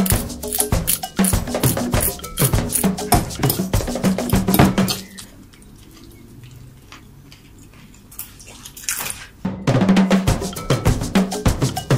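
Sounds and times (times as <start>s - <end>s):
percussive music: 0.0s - 5.2s, 9.4s - 11.9s
fork mashing in bowl: 0.0s - 6.1s, 10.4s - 11.9s.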